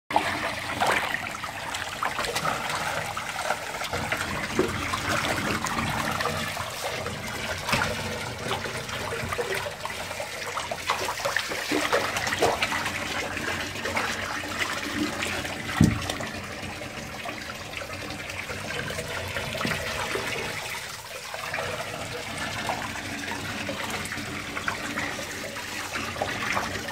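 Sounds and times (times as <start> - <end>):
fish splashing at water surface: 0.1 - 16.9.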